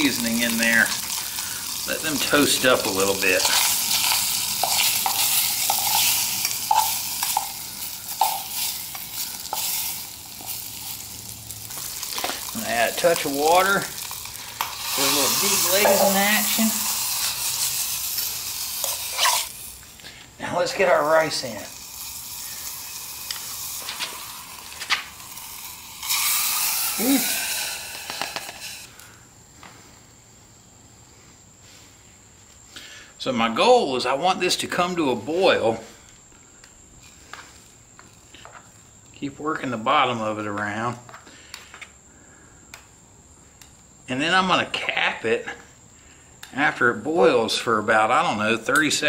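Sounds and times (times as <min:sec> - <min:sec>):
rice and water poured into cup: 0:00.0 - 0:19.5, 0:21.0 - 0:28.8
meat sizzling frying: 0:00.0 - 0:28.9
metal spoon scraping a cup: 0:03.5 - 0:07.6, 0:18.8 - 0:19.5.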